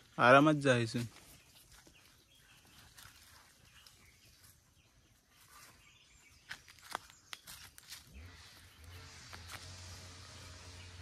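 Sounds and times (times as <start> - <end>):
clicks and snaps on dry leaves: 6.4 - 8.1.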